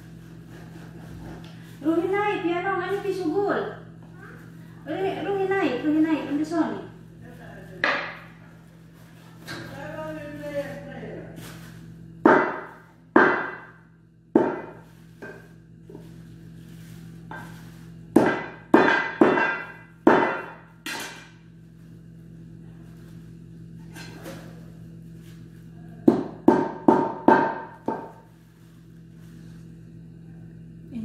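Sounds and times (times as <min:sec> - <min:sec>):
cleaver chopping meat on metal tray: 0:12.2 - 0:13.8, 0:14.4 - 0:15.4, 0:18.1 - 0:21.3, 0:26.0 - 0:28.2.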